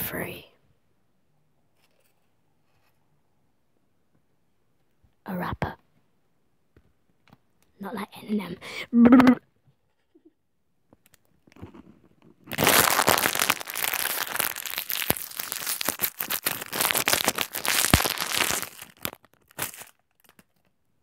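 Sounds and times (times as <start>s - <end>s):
wrapper crinkling: 11.6s - 20.7s.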